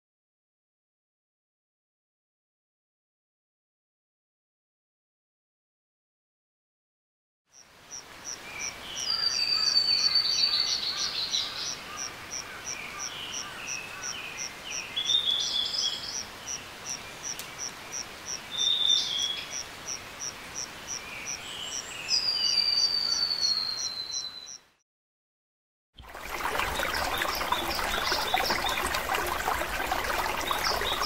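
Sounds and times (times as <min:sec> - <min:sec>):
birds calling: 0:26.4 - 0:31.0.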